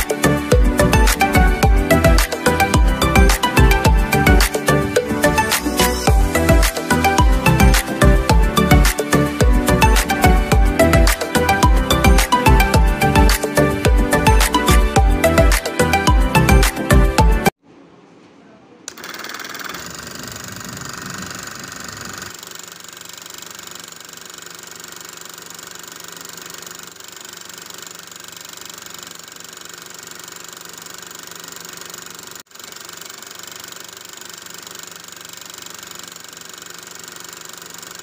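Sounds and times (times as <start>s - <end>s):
small motor driving air pump: 18.9s - 38.0s.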